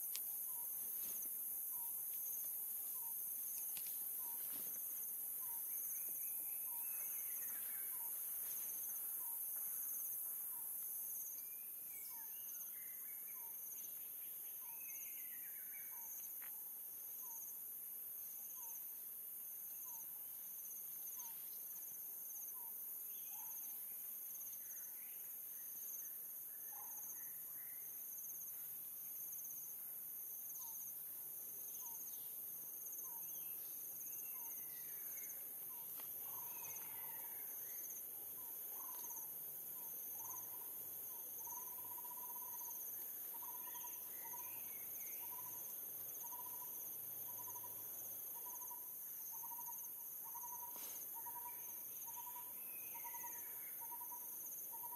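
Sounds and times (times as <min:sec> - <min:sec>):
insects droning: 0:00.0 - 0:54.9
insect pulsing: 0:32.8 - 0:54.9.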